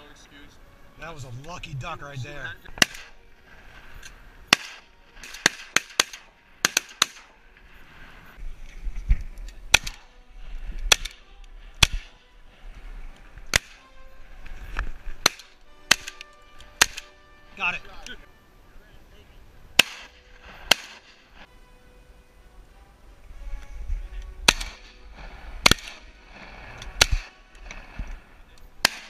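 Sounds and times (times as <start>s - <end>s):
shotgun shots: 2.8s - 3.2s, 4.5s - 7.4s, 9.7s - 10.1s, 10.9s - 11.2s, 11.8s - 12.2s, 13.5s - 13.9s, 15.2s - 17.2s, 19.8s - 21.3s, 24.4s - 25.0s, 25.6s - 27.8s, 28.8s - 29.0s.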